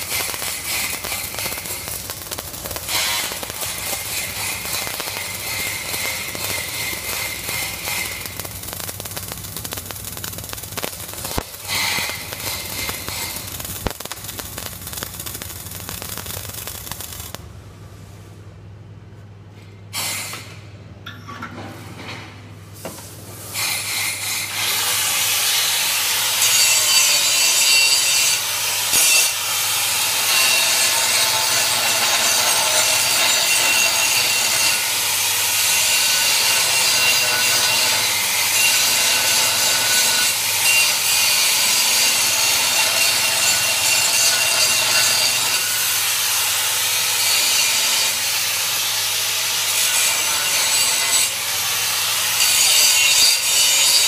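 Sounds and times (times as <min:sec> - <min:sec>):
angle grinder grinding steel: 0:00.0 - 0:15.4.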